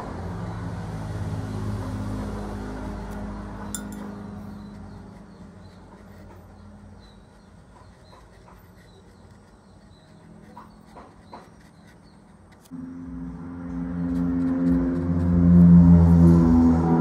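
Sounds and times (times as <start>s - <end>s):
ambient music with sustained tones: 12.7s - 17.0s.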